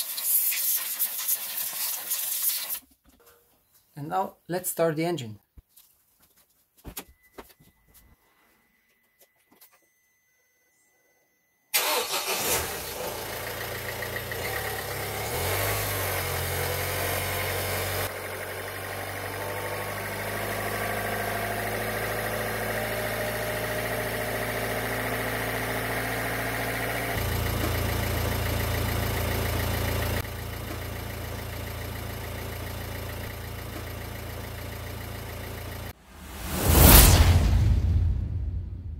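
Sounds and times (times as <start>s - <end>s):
diesel engine idling: 11.8s - 36.0s.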